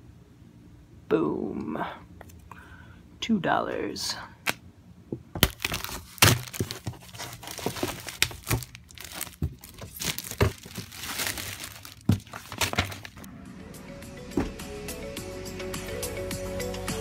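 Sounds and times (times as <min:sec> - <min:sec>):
handling noise crinkles and rustles: 0:05.3 - 0:13.3.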